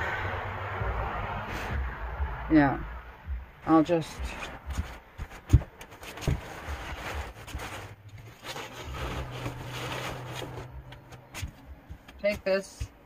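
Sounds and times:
rustling and scraping: 0:04.2 - 0:13.0.

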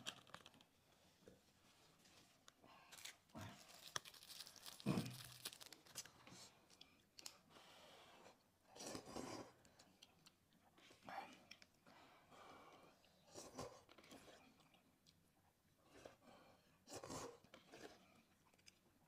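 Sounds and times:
paper napkins crumpling: 0:03.0 - 0:06.1
quiet chewing: 0:08.7 - 0:12.0, 0:12.6 - 0:19.0.

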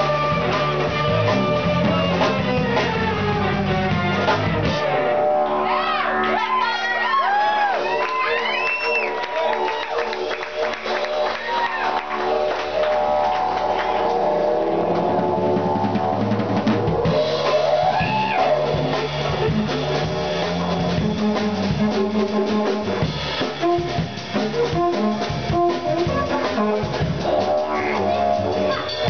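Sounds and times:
drum kit and band: 0:00.0 - 0:29.0
didgeridoo droning: 0:12.3 - 0:29.0.

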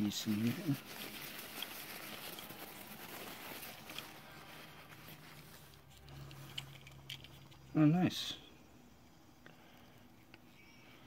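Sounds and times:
packing material rustling: 0:00.0 - 0:07.6.

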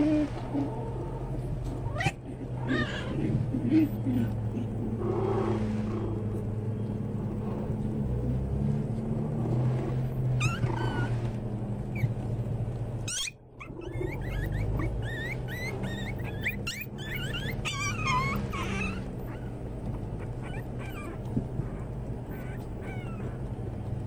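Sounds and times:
puppies whining and squealing: 0:00.0 - 0:06.4, 0:10.0 - 0:12.3, 0:13.0 - 0:24.0
low hum: 0:00.0 - 0:24.0.

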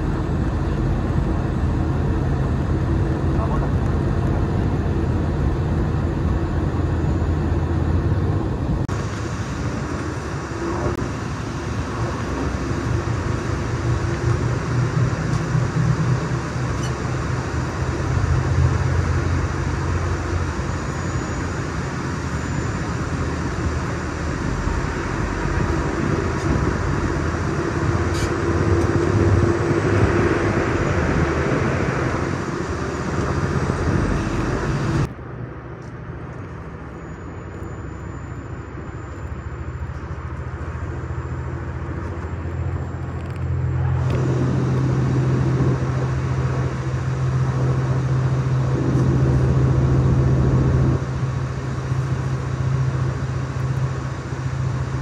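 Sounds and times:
diesel engine drone: 0:00.0 - 0:55.0
train wheels rumbling on rail: 0:21.4 - 0:36.8, 0:39.8 - 0:55.0.

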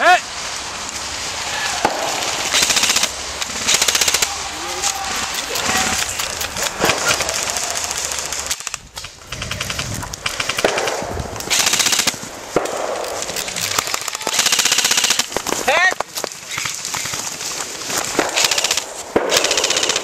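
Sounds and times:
airsoft guns firing bursts: 0:01.8 - 0:15.4, 0:18.1 - 0:20.0.

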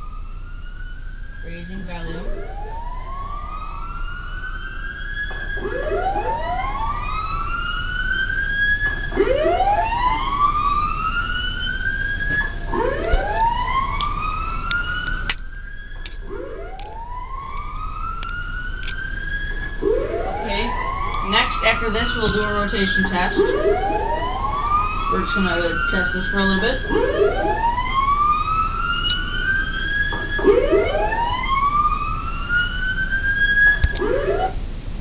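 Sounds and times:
rising siren whoop: 0:00.0 - 0:34.8
sharp clicks: 0:16.0 - 0:19.0.

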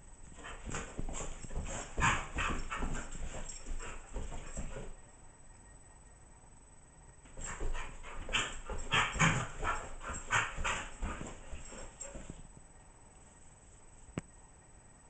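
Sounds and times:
dog scuffling and huffing: 0:00.2 - 0:05.0, 0:07.3 - 0:12.5.

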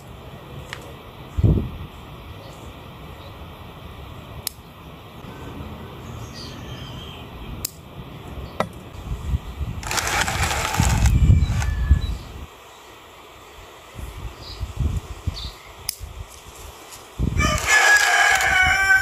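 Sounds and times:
rustling and handling noise: 0:09.8 - 0:11.7, 0:16.2 - 0:18.6.

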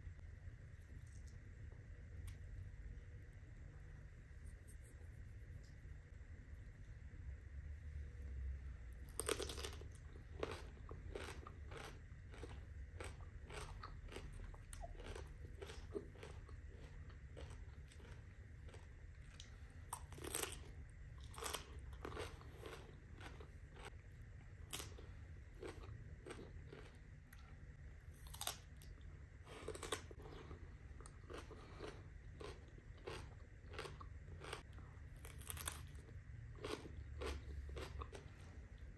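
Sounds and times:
low steady hum: 0:00.0 - 0:38.9
crunchy chewing: 0:09.0 - 0:38.9.

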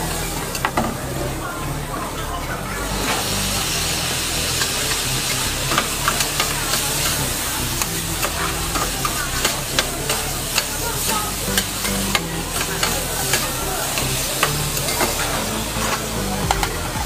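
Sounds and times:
noodles sizzling on griddle: 0:02.8 - 0:17.0
metal spatulas clacking on steel: 0:05.7 - 0:16.0.

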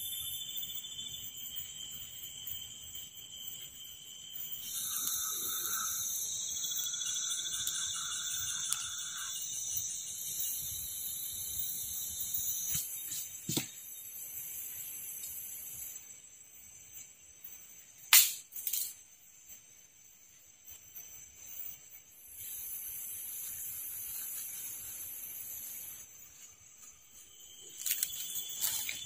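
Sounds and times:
insects chirring: 0:00.0 - 0:29.0
sharp cracks: 0:18.1 - 0:18.9.

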